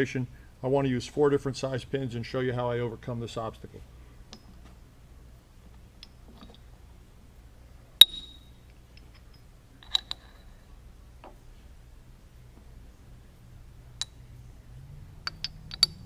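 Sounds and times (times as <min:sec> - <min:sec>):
metal clinks in a vise: 0:06.0 - 0:06.7, 0:08.0 - 0:10.6, 0:15.2 - 0:16.0.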